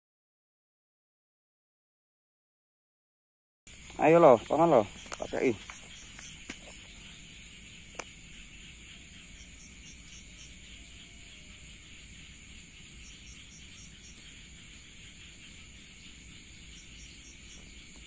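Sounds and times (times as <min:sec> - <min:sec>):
night insects chirping: 0:03.7 - 0:18.0.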